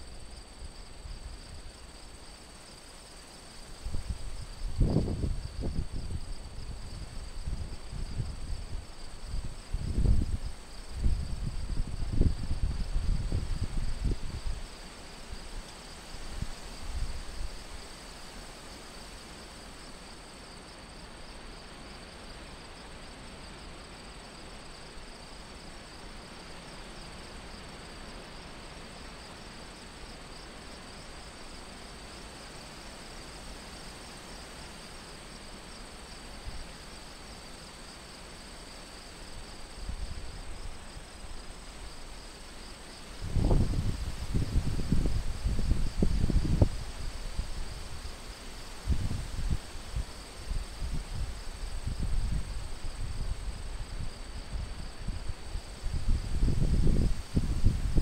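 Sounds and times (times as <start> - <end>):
crickets and insects trilling: 0.0 - 58.0
wind buffeting microphone: 3.9 - 14.6, 43.2 - 47.9, 50.6 - 58.0.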